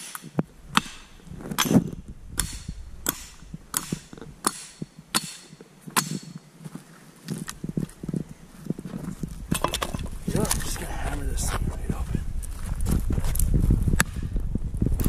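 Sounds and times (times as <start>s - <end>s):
hatchet chopping log: 0.0s - 6.4s.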